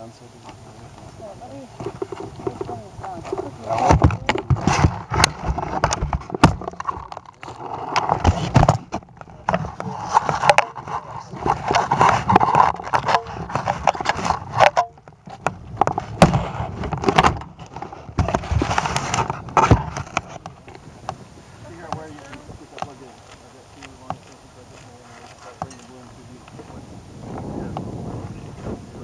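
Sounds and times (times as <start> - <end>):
sharp knocks and clicks: 1.8 - 21.2.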